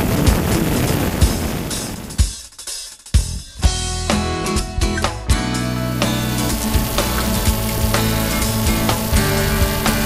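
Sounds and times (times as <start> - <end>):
guitar-led background music: 3.3 - 10.0.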